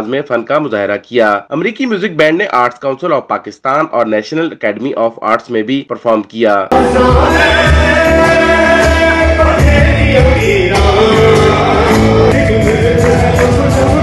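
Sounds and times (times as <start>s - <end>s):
electric guitar: 6.7s - 14.0s
men singing: 6.7s - 14.0s
steady drum beat: 6.7s - 14.0s.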